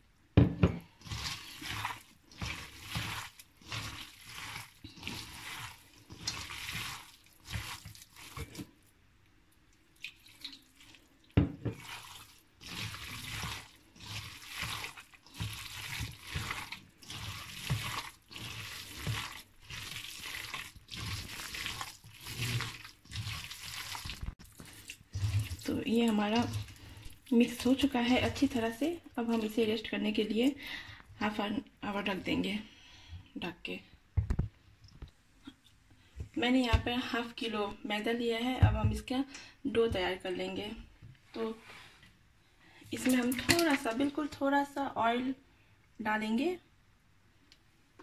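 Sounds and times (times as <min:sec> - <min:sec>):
hands squelching wet filling: 0:01.0 - 0:08.9, 0:09.7 - 0:29.7, 0:42.8 - 0:44.1.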